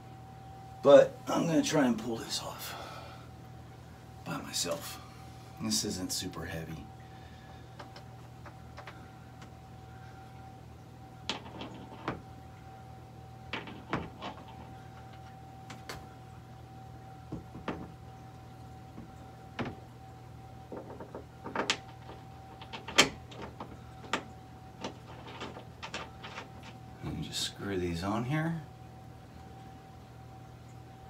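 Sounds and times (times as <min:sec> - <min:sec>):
faint steady hum: 0:00.0 - 0:31.0
light clicks of panel and posts: 0:07.7 - 0:09.6, 0:13.5 - 0:16.1, 0:20.7 - 0:27.4.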